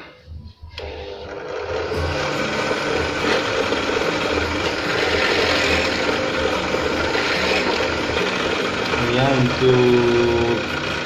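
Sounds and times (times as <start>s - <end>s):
drill press motor humming: 0.0s - 11.0s.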